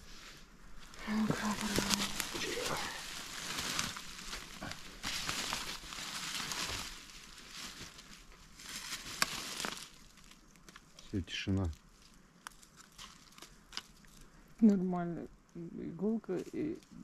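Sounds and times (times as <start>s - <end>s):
leaf litter rustling as dug: 0.0s - 14.2s.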